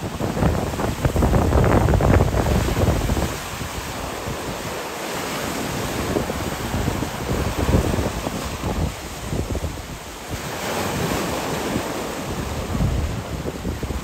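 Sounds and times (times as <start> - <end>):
lake waves breaking on shore: 0.0 - 14.0
wind gusts hitting microphone: 0.0 - 14.0.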